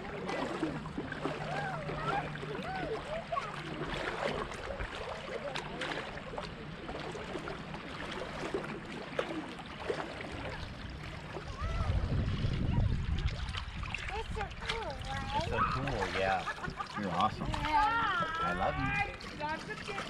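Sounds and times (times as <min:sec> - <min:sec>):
faint distant voices: 0:00.0 - 0:20.0
water lapping and splashing: 0:00.0 - 0:20.0
low rumble: 0:10.3 - 0:15.8.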